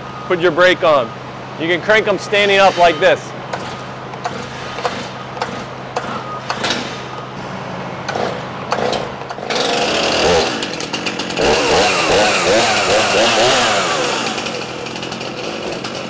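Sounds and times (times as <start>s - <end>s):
chainsaw engine running: 3.5s - 6.3s, 8.1s - 16.0s.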